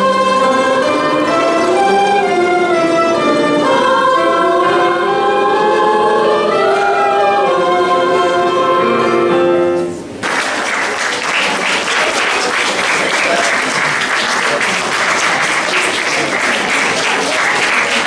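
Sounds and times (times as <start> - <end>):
children's choir singing: 0.0 - 9.8, 11.7 - 18.0
instrumental accompaniment: 0.0 - 10.2
audience applause: 10.2 - 18.0.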